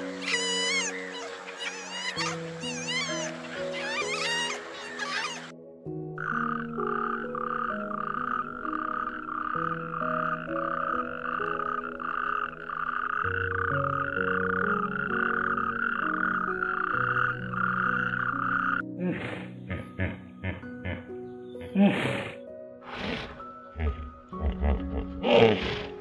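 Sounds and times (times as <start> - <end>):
toad croaking: 0.0 - 5.5, 6.2 - 18.8
soft background music: 0.0 - 26.0.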